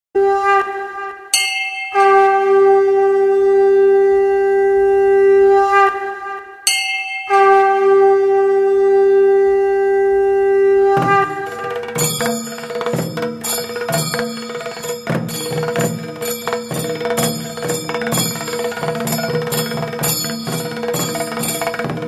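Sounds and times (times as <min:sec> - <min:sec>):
conch shell blasts: 0:00.2 - 0:22.0
bell-like ringing: 0:01.4 - 0:02.6, 0:06.7 - 0:07.8, 0:11.0 - 0:22.0
percussion: 0:01.4 - 0:02.6, 0:06.7 - 0:07.9, 0:10.9 - 0:22.0.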